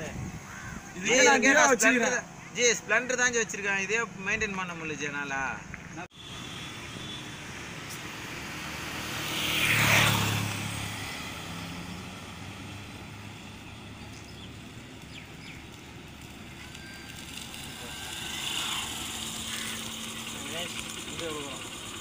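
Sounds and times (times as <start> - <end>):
highway traffic noise: 0.0 - 22.0
motorcycle passing: 6.2 - 22.0.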